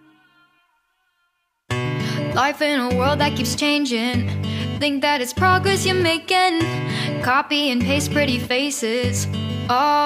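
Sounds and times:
acoustic guitar: 0:01.7 - 0:10.0
pop song with sung vocals: 0:02.0 - 0:10.0.

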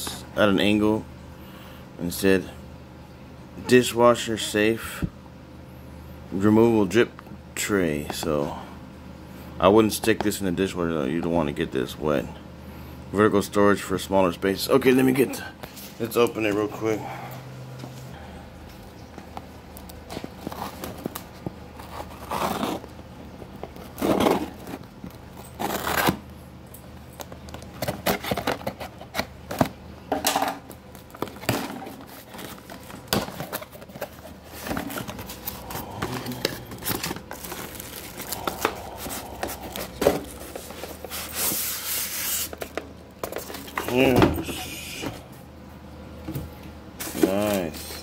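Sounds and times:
cardboard scraping: 0:20.1 - 0:22.9, 0:23.5 - 0:24.9, 0:25.5 - 0:26.2, 0:31.1 - 0:43.8
tape tearing: 0:20.1 - 0:23.0, 0:23.6 - 0:26.3, 0:27.5 - 0:29.7, 0:30.9 - 0:42.8
plastic wrap crinkling: 0:30.9 - 0:43.8.

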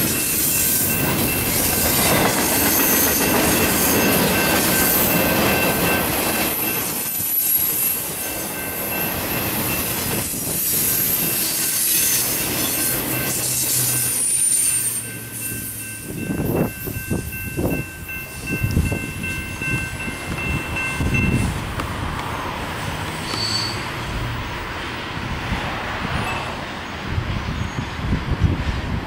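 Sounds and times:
crossing signal bell ringing: 0:00.0 - 0:21.6
freight train rumbling: 0:00.0 - 0:29.0
wheel squeal: 0:09.7 - 0:16.0, 0:23.2 - 0:24.0.

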